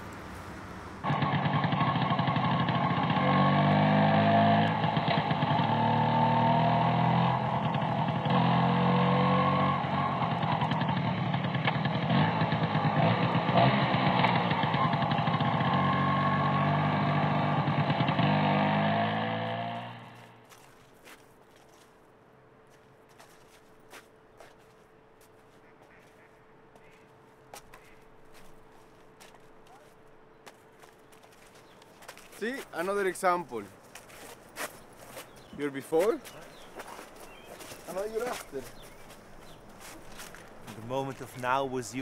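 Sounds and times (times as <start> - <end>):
scooter engine accelerating: 0.0 - 20.4.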